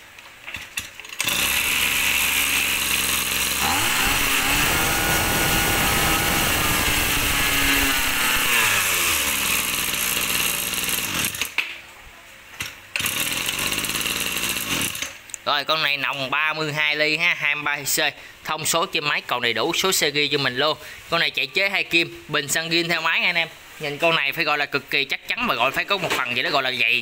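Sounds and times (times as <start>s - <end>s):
brush cutter pull start: 1.1s - 11.6s, 13.0s - 15.2s
two-stroke brush cutter engine: 1.1s - 11.6s, 13.0s - 15.2s.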